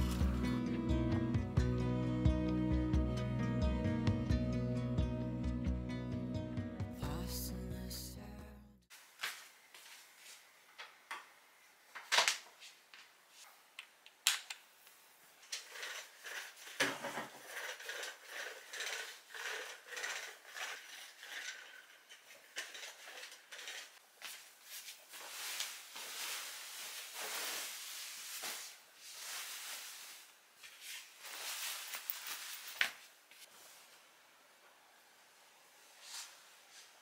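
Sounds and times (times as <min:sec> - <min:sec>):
duster scraping wood: 0:15.6 - 0:24.0
bedding rustling: 0:24.2 - 0:33.9.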